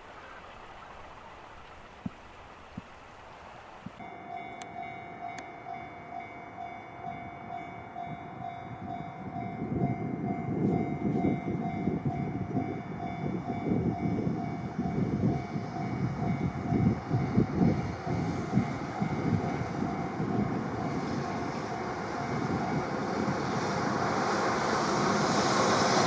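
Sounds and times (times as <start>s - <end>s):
freight train rumble: 3.2s - 26.0s
level crossing bell ringing: 4.0s - 14.2s.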